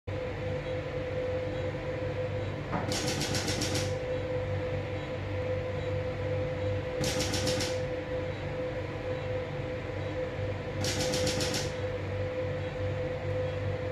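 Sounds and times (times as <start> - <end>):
steady equipment hum: 0.1 - 13.9
rapid repeated clicks: 2.9 - 4.0, 7.0 - 7.9, 10.8 - 11.8.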